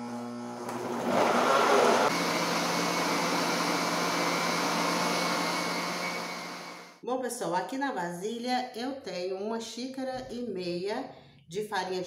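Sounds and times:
countertop blender running: 0.0s - 7.0s.

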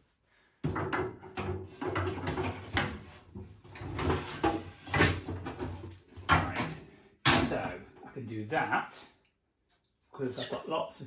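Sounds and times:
plastic drawer knocking and scraping: 0.6s - 6.6s.

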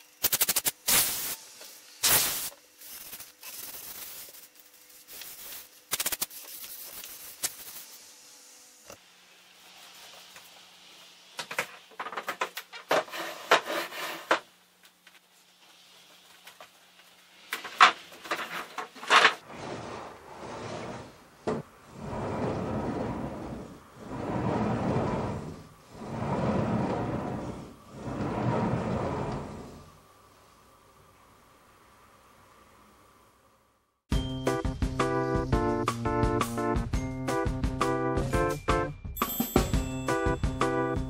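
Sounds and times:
sliding door rolling rumble: 19.2s - 30.0s.

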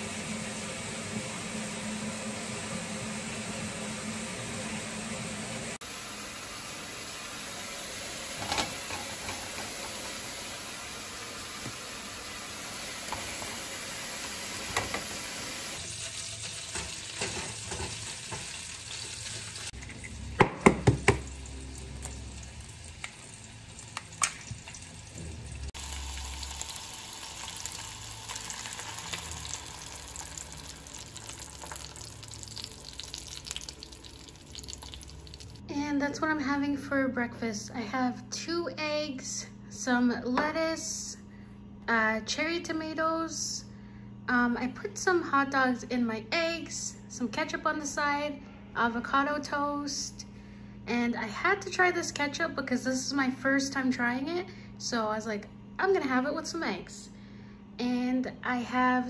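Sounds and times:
food sizzling in a frying pan: 5.8s - 35.6s.

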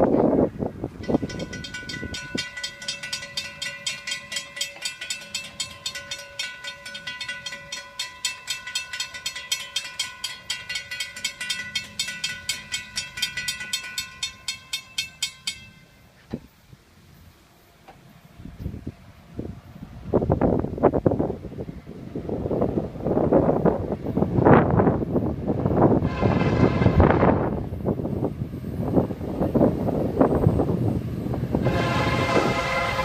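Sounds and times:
railroad crossing bell ringing: 1.0s - 16.2s, 25.7s - 33.0s.

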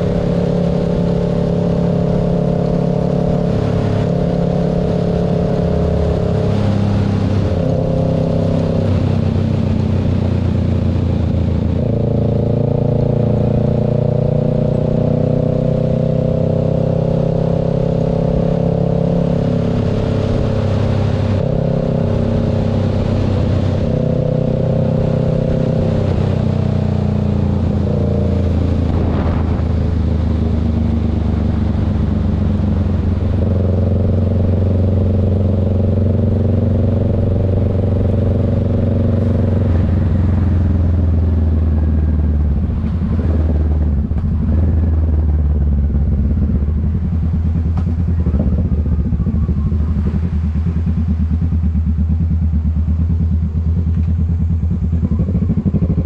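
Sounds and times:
motorcycle engine running: 0.0s - 56.0s
road noise: 0.0s - 56.0s
wind rushing: 27.6s - 32.4s.

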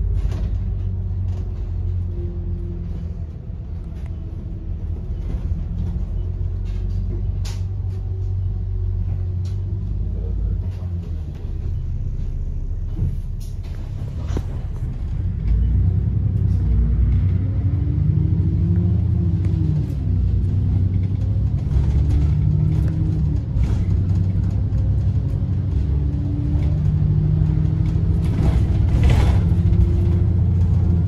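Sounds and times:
bus engine rumbling: 0.0s - 31.0s
bodywork rattles and clicks: 19.1s - 31.0s.

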